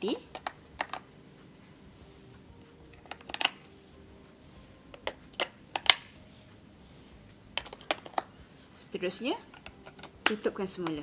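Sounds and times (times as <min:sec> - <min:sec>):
batteries clicking into compartment: 0:02.9 - 0:03.6.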